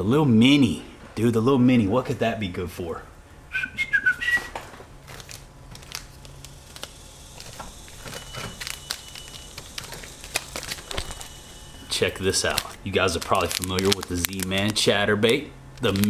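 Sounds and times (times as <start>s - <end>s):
plastic packaging crinkling: 4.5s - 16.0s
short high squeaks: 6.6s - 12.8s.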